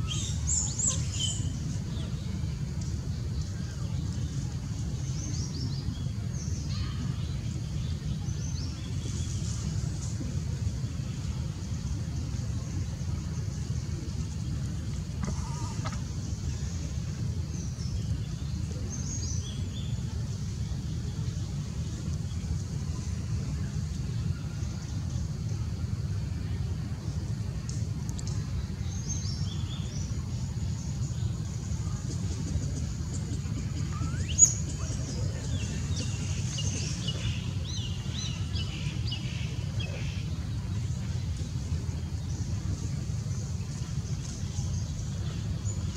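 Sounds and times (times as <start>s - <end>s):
low outdoor rumble: 0.0s - 45.9s
faint high bird chirps: 33.8s - 37.2s.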